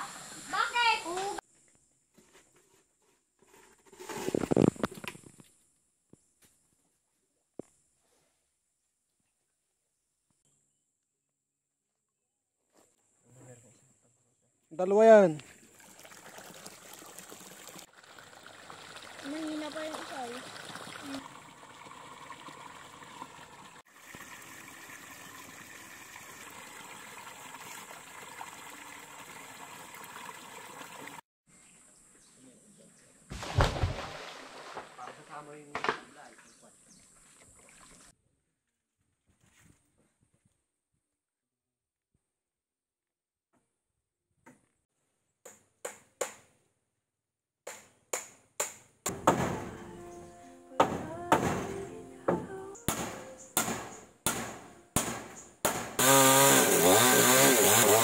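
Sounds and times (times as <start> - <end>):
water running: 15.0 - 31.2
sharp knocks: 47.7 - 49.9, 50.8 - 56.0.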